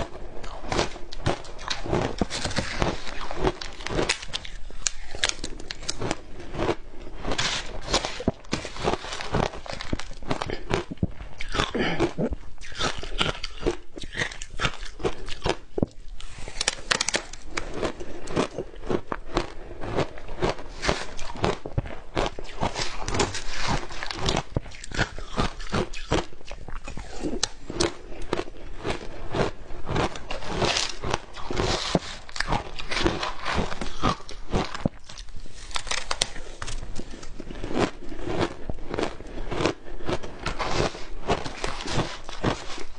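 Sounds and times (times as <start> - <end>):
ice crunching when chewed: 0.0 - 42.9.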